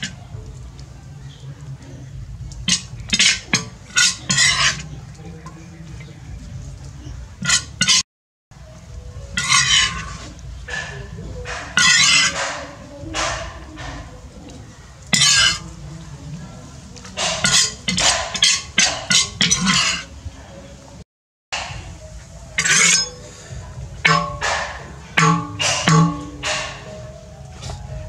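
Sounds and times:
metal ladle scraping a wok: 2.7 - 5.0, 7.4 - 8.0, 9.4 - 14.1, 17.2 - 20.1, 22.6 - 27.0.

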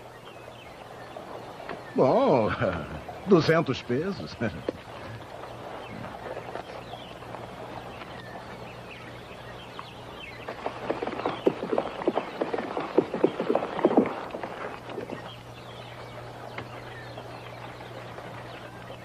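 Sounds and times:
bird chirps: 0.0 - 19.0
horse hooves clip-clopping: 4.5 - 19.0.

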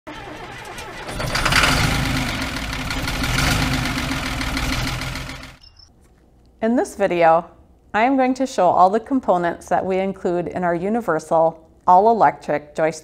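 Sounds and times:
engine starting and running: 0.0 - 5.6.

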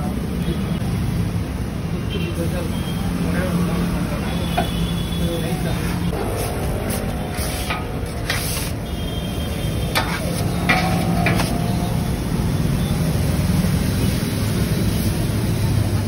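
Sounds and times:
metal spatula scraping griddle: 6.1 - 9.0, 9.8 - 12.0
food sizzling: 6.1 - 9.1.

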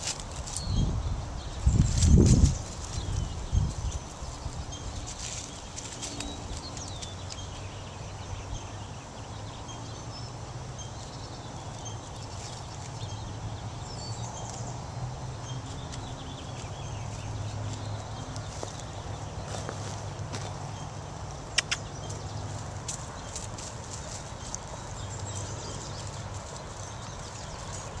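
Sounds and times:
grass stems rustling: 0.0 - 0.8, 1.6 - 7.4, 15.6 - 21.4, 22.1 - 28.0.

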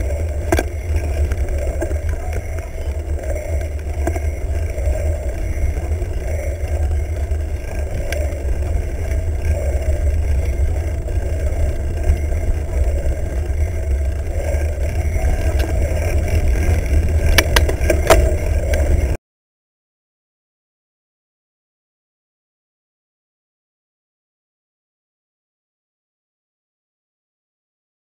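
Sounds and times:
bike knocks and rattles: 0.0 - 19.2
wind rumble on microphone: 0.0 - 19.2.

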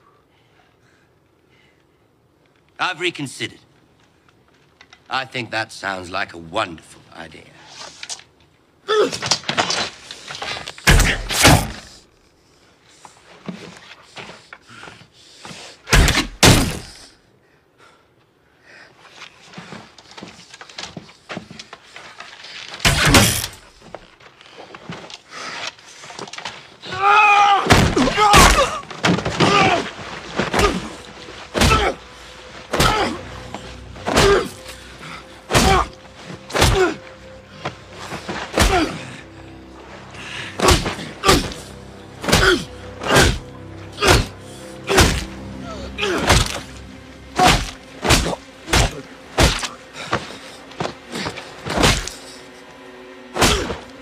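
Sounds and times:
loud cry: 26.9 - 28.8
orchestral music: 28.0 - 54.0.

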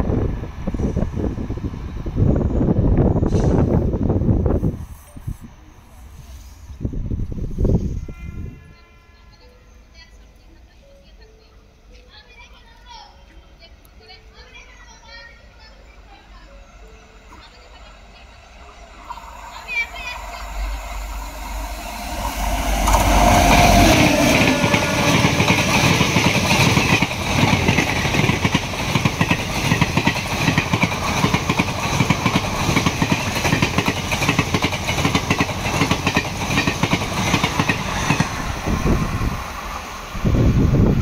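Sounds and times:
train passing at speed: 0.0 - 41.0
train wheels clickety-clack: 21.9 - 38.5.

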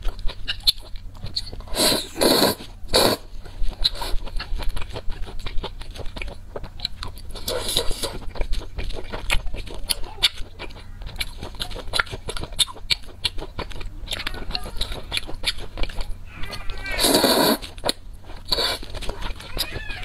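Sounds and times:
wet chewing with smacks: 0.0 - 20.0
noodle slurping: 1.4 - 5.6, 14.6 - 19.8.

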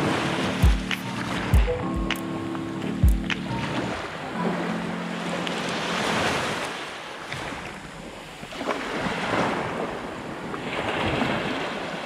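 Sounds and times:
waves washing over stony shore: 5.5 - 12.0.

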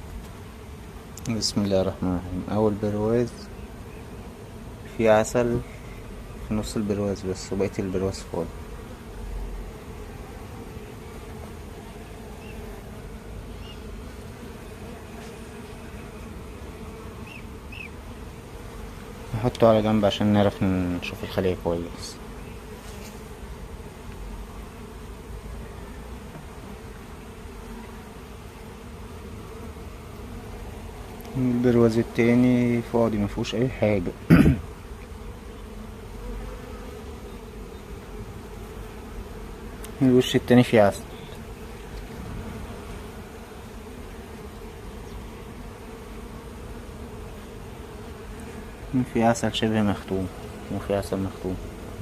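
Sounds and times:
bees buzzing: 0.0 - 52.0.

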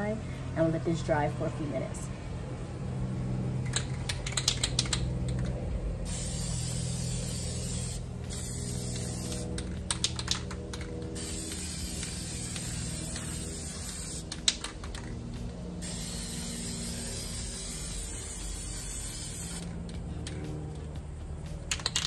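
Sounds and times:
aerosol can spraying: 6.1 - 9.5, 11.2 - 14.3, 15.8 - 19.7.

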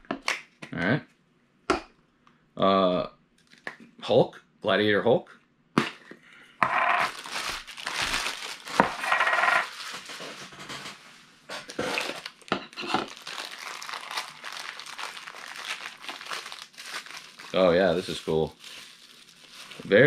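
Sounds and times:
plastic bag crinkling: 6.9 - 11.0, 11.7 - 20.0.

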